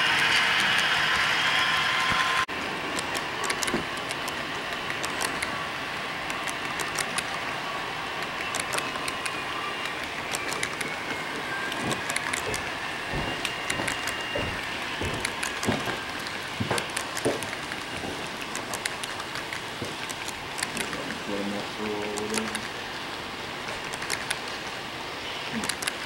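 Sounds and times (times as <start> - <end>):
model train wheels clicking: 0.0 - 5.6, 6.2 - 7.4, 8.2 - 21.2, 21.9 - 22.8, 23.7 - 24.5, 25.5 - 26.0
faint high whine: 0.0 - 17.1
steady hiss: 15.8 - 26.0.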